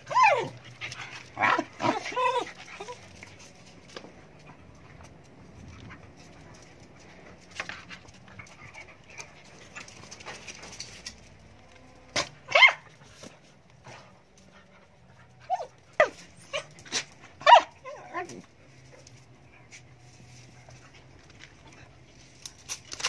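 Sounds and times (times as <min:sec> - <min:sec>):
dog barking: 0:12.5 - 0:12.8, 0:17.4 - 0:17.7.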